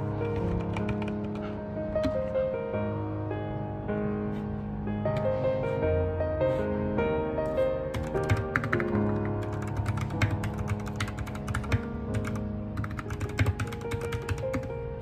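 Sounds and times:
mechanical keyboard typing: 0:00.0 - 0:02.2, 0:07.9 - 0:14.8
soft piano music: 0:00.0 - 0:15.0.

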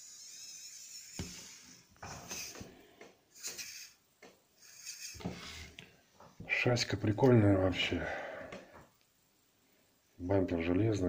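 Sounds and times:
small electric motor whining: 0:00.0 - 0:02.6.

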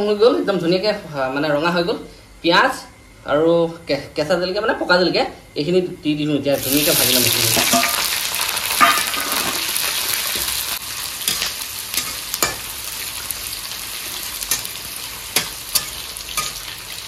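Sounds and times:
onions sizzling in hot oil: 0:06.5 - 0:17.0.

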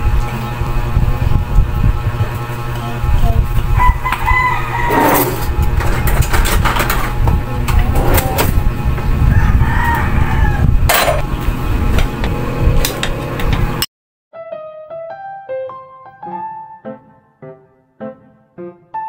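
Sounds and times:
rooster crowing: 0:03.8 - 0:05.5, 0:09.2 - 0:10.9.

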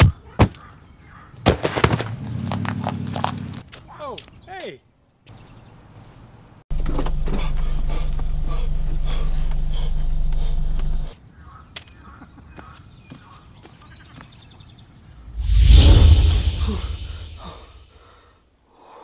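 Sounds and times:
loud rushing noise: 0:15.3 - 0:17.8.

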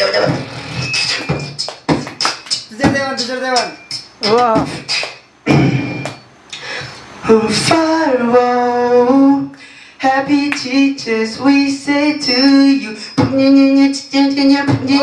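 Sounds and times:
man singing into a microphone: 0:07.3 - 0:15.0.

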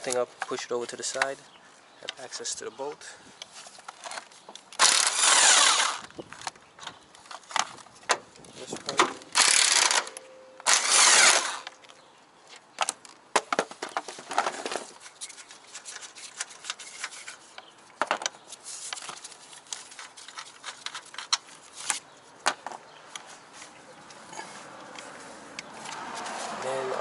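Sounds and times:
impact wrench running: 0:04.8 - 0:06.1, 0:09.4 - 0:10.1, 0:10.7 - 0:11.7
metal and plastic parts clicking: 0:18.0 - 0:22.0.

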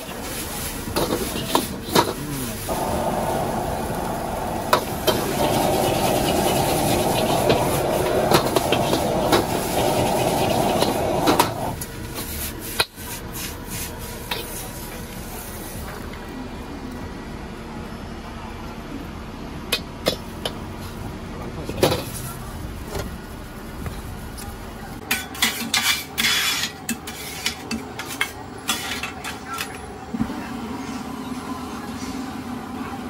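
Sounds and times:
steady rushing noise: 0:02.4 - 0:11.8
utensils clinking against wok: 0:25.0 - 0:29.8.

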